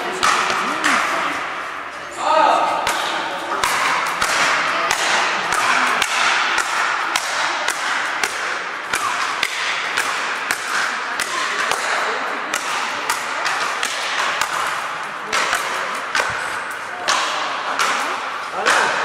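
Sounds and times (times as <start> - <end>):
paddles striking ball: 0.0 - 1.6, 2.8 - 19.0
steady background noise: 0.0 - 19.0.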